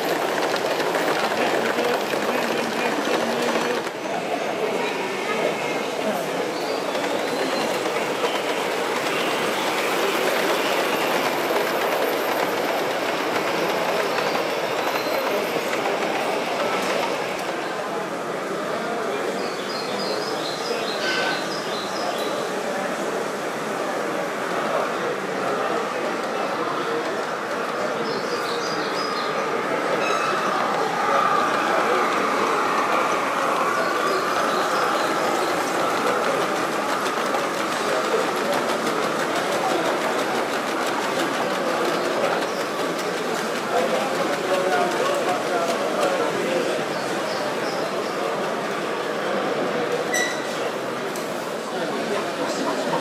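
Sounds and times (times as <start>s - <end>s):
model train wheels on track: 0.0s - 53.0s.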